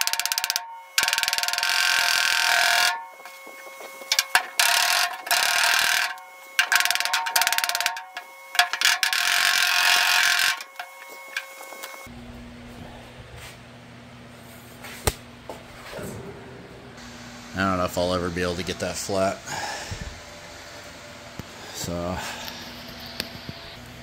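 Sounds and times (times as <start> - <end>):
power tool on sheet steel: 0.0 - 12.1.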